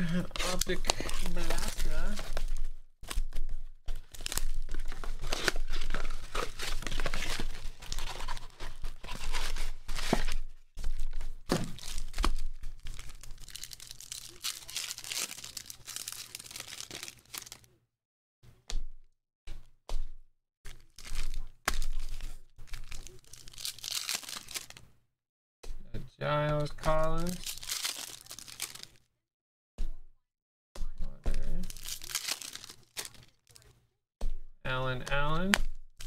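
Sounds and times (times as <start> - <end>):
foil packs crinkling and tearing: 0.0 - 17.7, 20.7 - 24.8, 26.6 - 29.0, 31.4 - 33.7
cardboard box tearing: 4.1 - 10.5.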